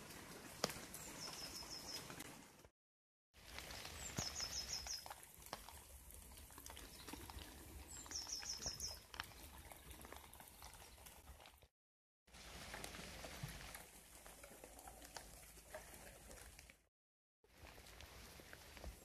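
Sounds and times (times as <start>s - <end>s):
rain pattering: 0.0s - 2.7s, 3.4s - 11.7s, 12.3s - 16.8s, 17.5s - 19.0s
water dripping: 3.4s - 11.7s.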